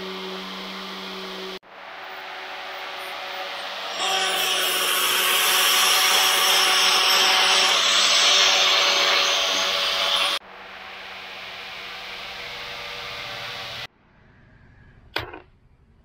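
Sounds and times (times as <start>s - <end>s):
angle grinder motor hum: 0.0s - 13.9s
disc grinding metal: 3.6s - 10.4s.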